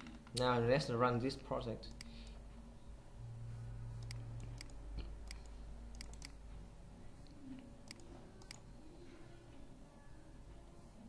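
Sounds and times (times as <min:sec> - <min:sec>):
computer mouse clicking: 0:01.9 - 0:02.4, 0:04.0 - 0:06.4, 0:07.2 - 0:08.7.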